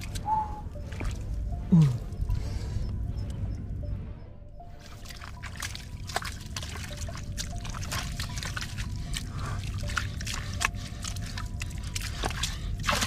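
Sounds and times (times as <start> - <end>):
steady low rumble: 0.0 - 13.0
hands splashing muddy water: 4.7 - 13.0.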